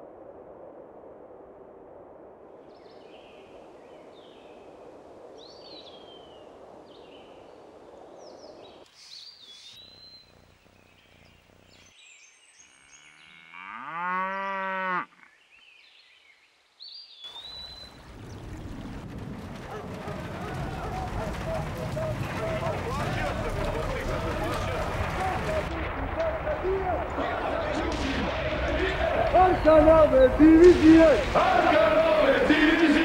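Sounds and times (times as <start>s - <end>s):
low steady hiss: 0.0s - 13.3s
cow mooing: 12.6s - 15.3s.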